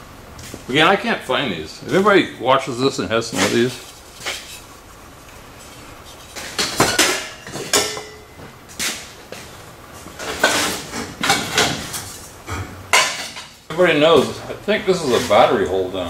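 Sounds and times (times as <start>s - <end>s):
metal car parts clanking: 6.2s - 9.0s, 10.2s - 12.2s.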